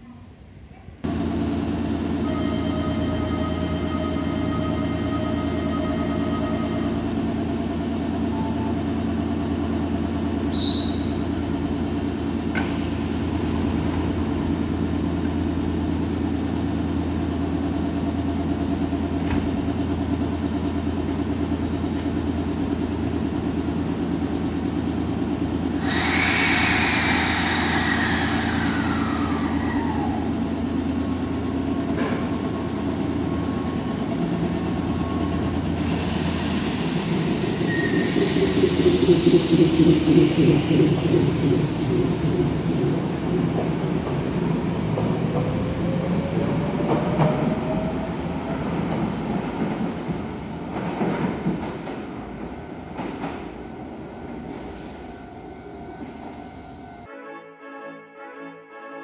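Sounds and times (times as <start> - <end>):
train electrical hum: 0.0 - 57.1
train pulling away: 1.1 - 57.1
hissing air with falling whistle: 10.5 - 11.2, 25.8 - 30.4, 35.8 - 42.6.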